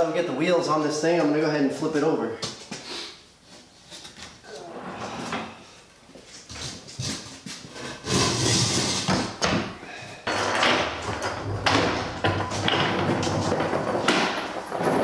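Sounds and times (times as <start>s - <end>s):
wooden frame bumping and scraping: 6.4s - 15.0s.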